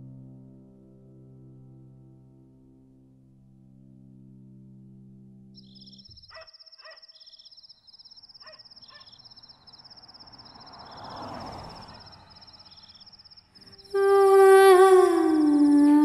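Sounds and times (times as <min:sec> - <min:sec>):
insects trilling: 0:05.6 - 0:16.0.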